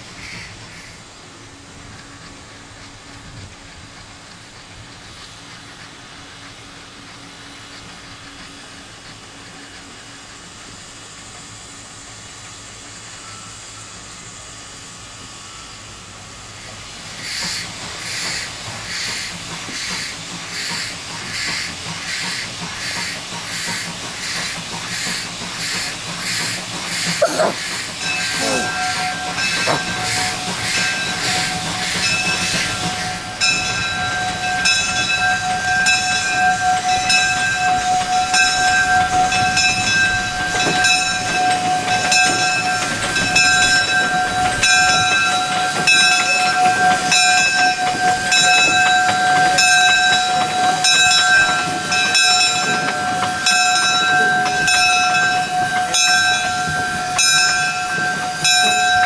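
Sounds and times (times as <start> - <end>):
steam hissing and chuffing: 0.0 - 59.0
locomotive bell ringing: 27.3 - 59.0.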